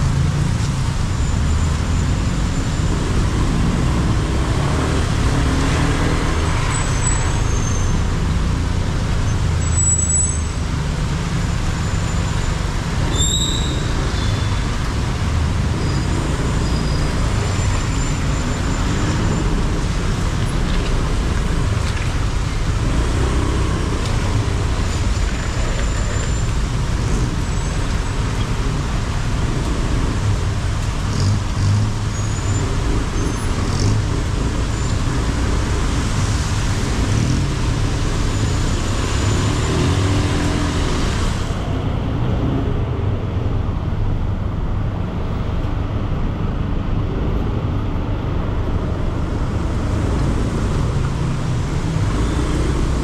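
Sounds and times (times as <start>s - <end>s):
traffic engines and tyres: 0.0s - 53.0s
faint high squeals: 13.1s - 14.6s.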